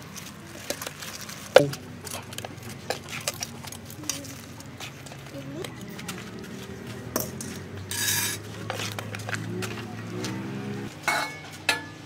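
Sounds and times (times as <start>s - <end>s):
metal utensil scraping metal pan: 7.2s - 9.3s.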